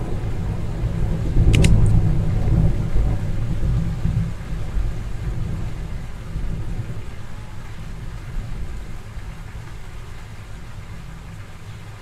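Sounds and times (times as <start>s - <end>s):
sharp clicks: 1.5s - 2.0s.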